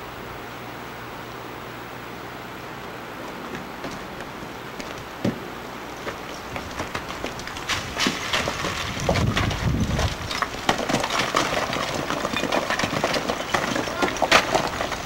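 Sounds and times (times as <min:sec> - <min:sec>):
rattling and knocking in truck cab: 0:06.1 - 0:15.0.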